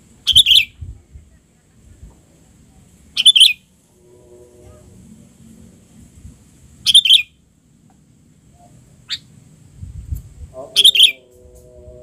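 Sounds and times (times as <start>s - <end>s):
bird chirping quickly: 0.2s - 0.8s, 3.2s - 3.6s, 6.8s - 7.4s, 10.8s - 11.2s.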